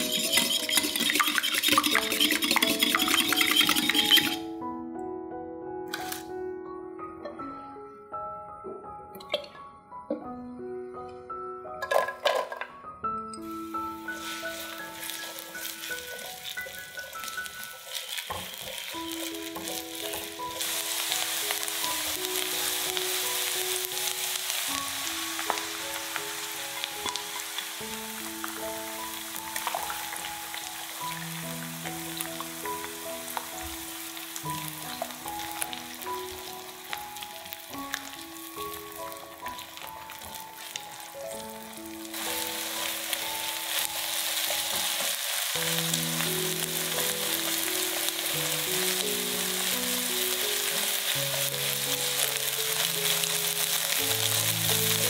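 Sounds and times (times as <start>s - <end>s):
onion sizzling in hot oil: 0.0s - 4.4s, 5.9s - 6.3s, 13.5s - 55.0s
spatula stirring in pan: 0.0s - 4.4s
soft background music: 0.0s - 55.0s.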